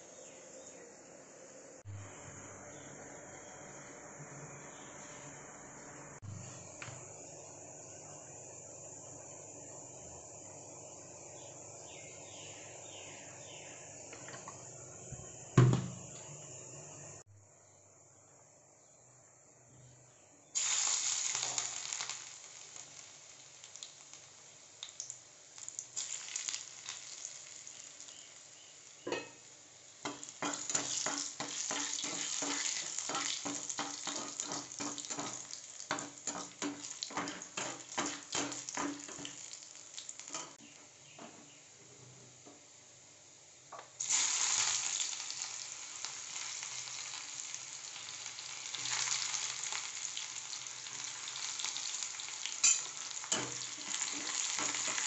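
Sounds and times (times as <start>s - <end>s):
spices sizzling in hot oil: 20.5s - 41.2s, 43.8s - 55.0s
crackling spatter of oil: 20.6s - 40.6s, 43.8s - 55.0s.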